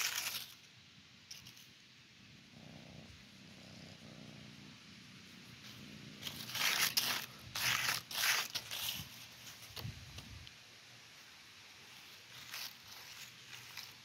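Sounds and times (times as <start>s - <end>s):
dry leaf crackling: 0.0s - 0.7s, 5.6s - 10.4s, 11.2s - 14.0s.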